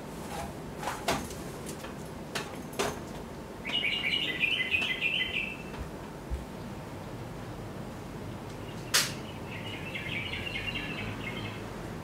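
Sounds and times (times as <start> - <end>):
small bird chirping: 3.6 - 5.7, 8.6 - 11.6.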